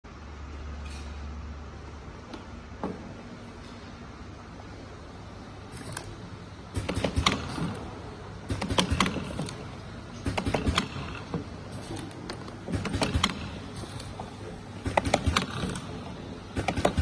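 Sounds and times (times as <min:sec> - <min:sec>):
machine hum: 0:00.1 - 0:17.0
labeling machine clicking and clatter: 0:06.7 - 0:17.0.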